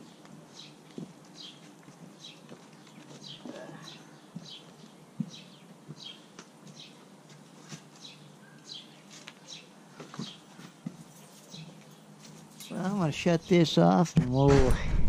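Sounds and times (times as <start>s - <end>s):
small birds chirping: 0.0s - 14.0s
soft low thumps: 14.2s - 15.0s.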